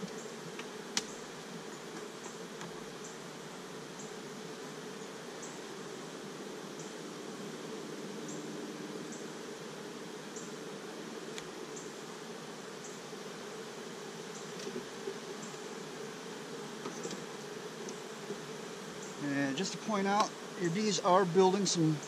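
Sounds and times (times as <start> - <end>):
honeybees buzzing: 0.0 - 22.0.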